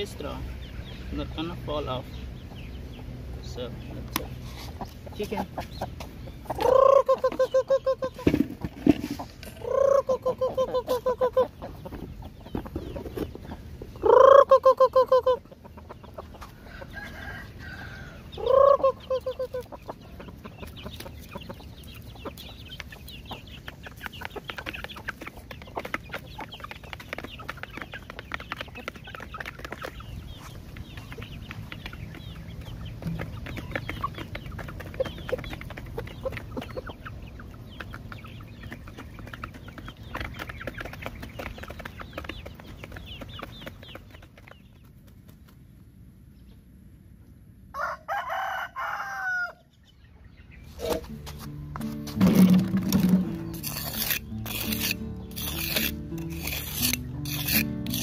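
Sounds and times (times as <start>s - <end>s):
chickens clucking: 0.0s - 58.0s
loud drawn-out chicken calls: 4.1s - 26.7s, 47.6s - 51.1s.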